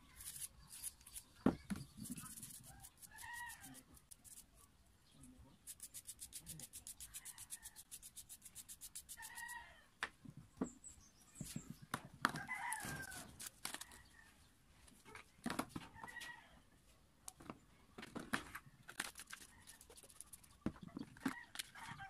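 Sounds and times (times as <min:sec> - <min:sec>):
toothbrush scrubbing: 0:00.1 - 0:04.5, 0:05.6 - 0:09.6, 0:19.1 - 0:20.5.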